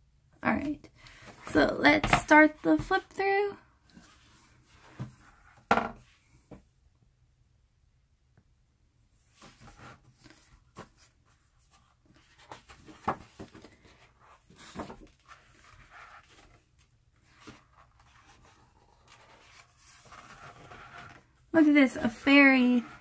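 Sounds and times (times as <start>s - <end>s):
book pages turning: 9.4s - 21.3s.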